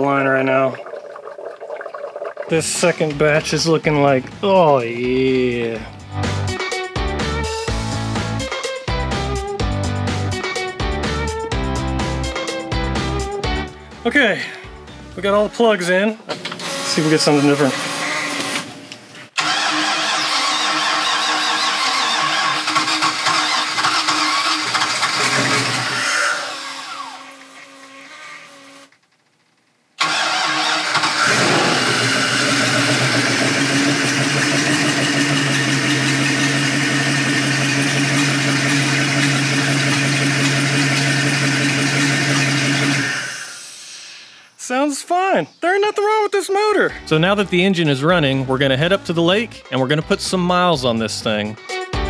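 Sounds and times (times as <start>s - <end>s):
boat engine starting and idling: 19.4s - 27.5s, 30.0s - 43.4s.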